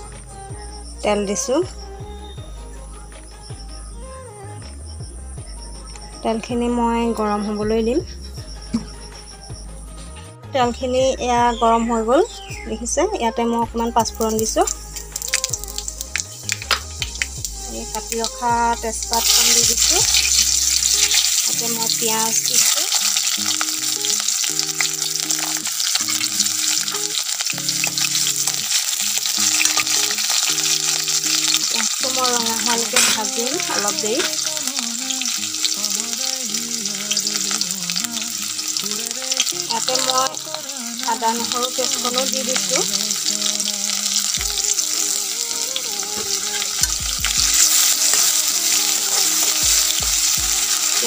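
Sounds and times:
onions sizzling in oil: 14.4 - 51.0
metal spoon scraping pan: 32.8 - 34.5.

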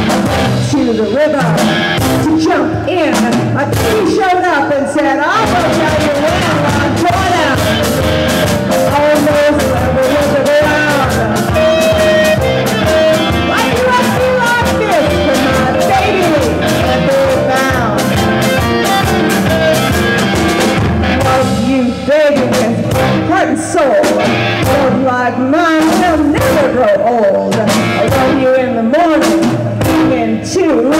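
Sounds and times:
drum kit: 0.0 - 4.5, 5.2 - 30.9
electric guitar: 0.0 - 30.9
woman singing: 2.2 - 7.9, 8.7 - 20.0, 21.1 - 30.9.

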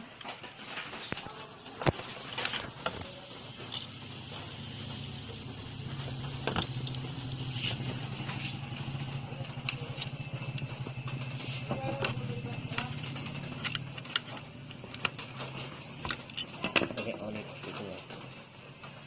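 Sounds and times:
motor humming: 1.8 - 17.7.

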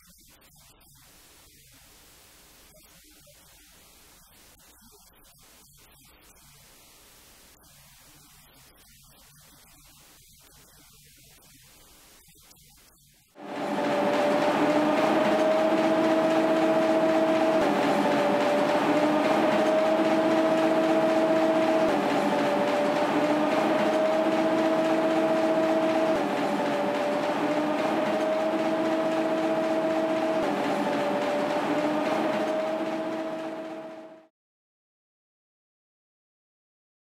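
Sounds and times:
printing press roaring: 13.4 - 34.3.

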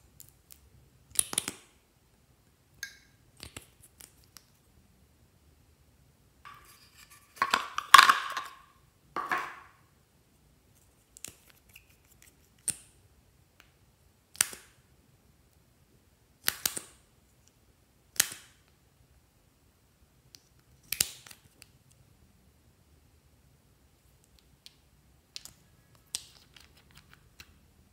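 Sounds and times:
small glass bottles clicking: 7.4 - 9.6.

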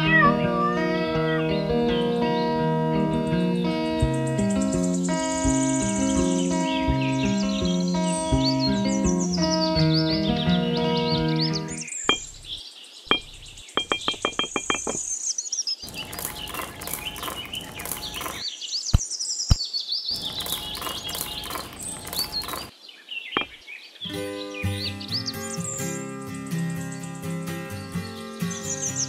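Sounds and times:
small birds chirping: 0.0 - 29.0
pebbles clicking and rattling: 15.9 - 18.4, 20.2 - 22.7.

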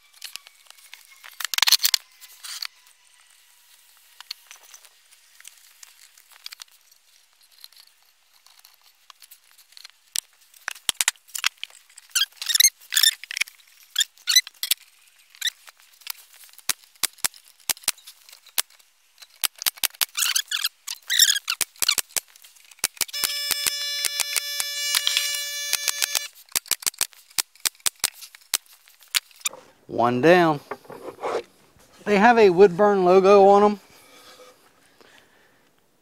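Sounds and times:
wooden joints squeaking: 29.3 - 32.6
wood-on-wood knocks and clicks: 30.6 - 31.2.

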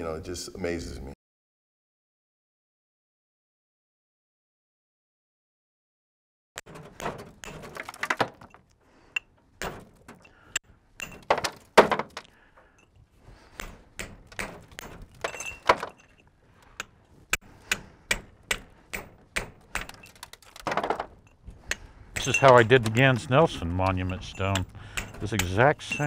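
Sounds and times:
hammer striking chisel on stone: 13.6 - 15.5, 16.8 - 20.1, 21.7 - 26.0.

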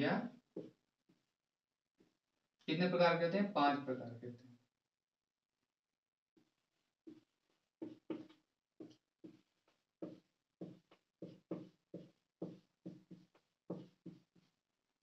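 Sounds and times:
marker writing on whiteboard: 0.6 - 1.3, 6.4 - 14.6.

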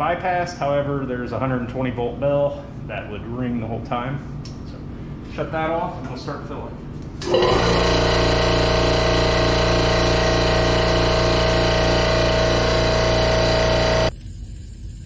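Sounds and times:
air compressor motor hum: 7.1 - 15.0.

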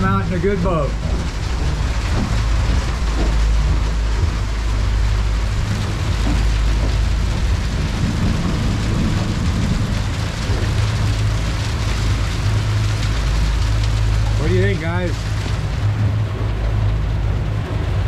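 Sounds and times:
outboard engines droning: 0.0 - 18.0
rain and wind rushing: 0.0 - 18.0.

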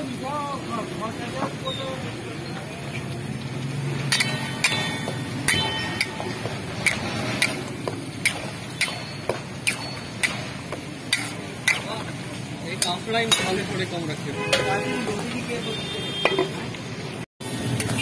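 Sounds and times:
metal spatula knocking on wok: 4.1 - 12.0, 12.7 - 13.7.

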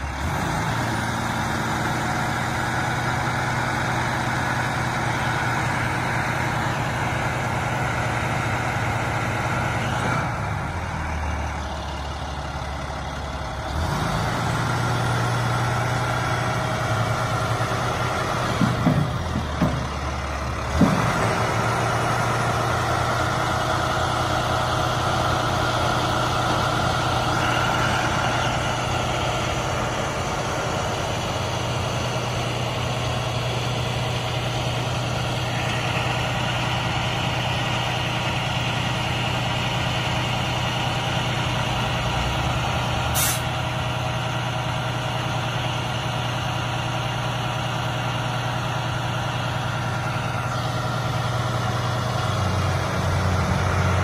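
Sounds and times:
diesel truck engine running: 0.0 - 54.0
sharp knocks: 18.5 - 20.0.

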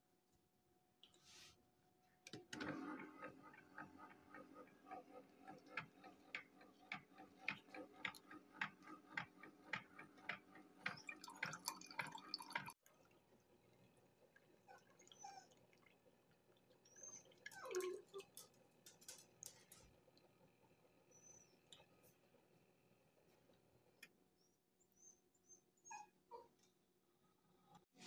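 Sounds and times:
coffee maker ticking: 3.5 - 12.7
coffee dripping: 10.8 - 20.4.

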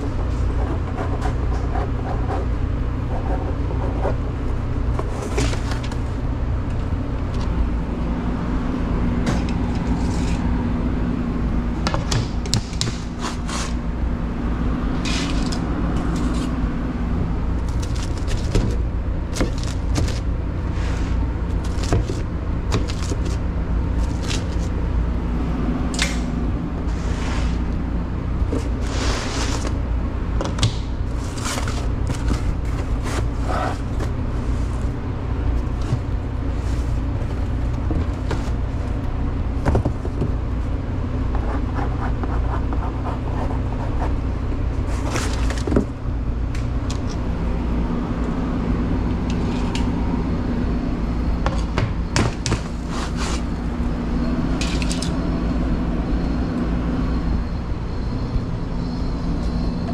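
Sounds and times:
pizza boxes clicking and scraping: 0.0 - 6.2, 11.9 - 13.9, 17.5 - 24.8, 28.4 - 29.8, 30.6 - 40.5, 41.4 - 46.0, 52.0 - 54.0
kitchen machinery hum: 0.0 - 59.9.

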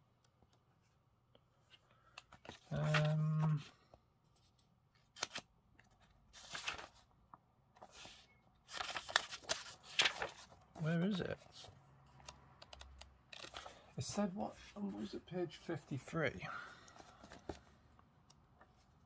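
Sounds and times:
book pages rustling: 1.5 - 12.4, 13.3 - 15.1, 16.9 - 17.8.

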